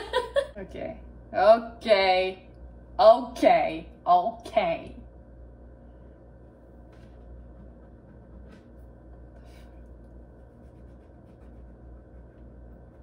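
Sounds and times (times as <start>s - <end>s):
low room hum: 0.0s - 13.0s
faint scratches and taps: 6.9s - 13.0s.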